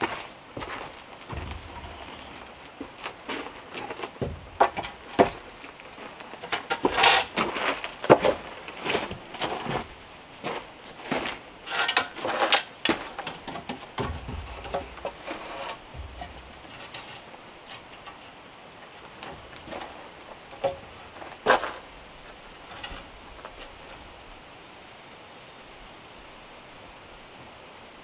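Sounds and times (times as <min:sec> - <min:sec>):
light taps and rubbing: 0:00.6 - 0:05.7, 0:12.9 - 0:24.0
wooden beam knocking: 0:01.3 - 0:03.0, 0:04.2 - 0:05.4, 0:13.8 - 0:16.9.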